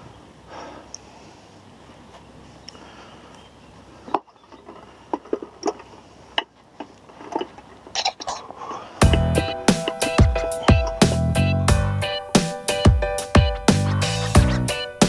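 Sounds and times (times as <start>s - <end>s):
handling clicks and knocks: 4.1s - 11.2s
loud electronic music with beat: 9.0s - 15.0s.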